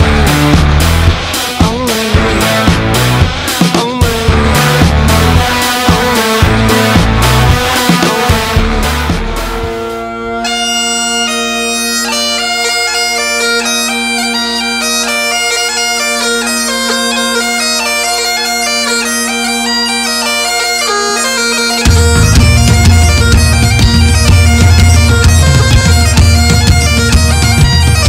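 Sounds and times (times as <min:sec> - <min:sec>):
drums and bass: 0:00.0 - 0:10.3, 0:21.6 - 0:28.0
bagpipe melody with drones: 0:00.0 - 0:28.0.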